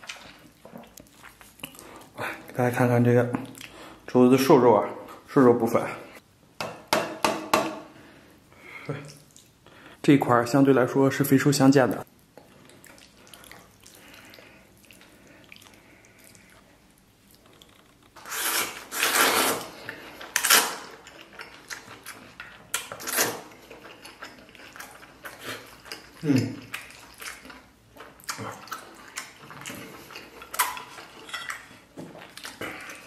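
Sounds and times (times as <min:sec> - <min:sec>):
chewing: 0:00.0 - 0:02.6, 0:12.1 - 0:18.2, 0:19.7 - 0:33.0.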